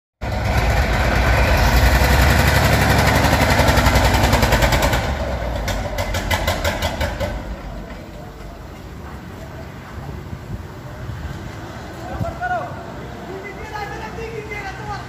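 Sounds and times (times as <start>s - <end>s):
diesel truck engine running: 0.2s - 11.9s.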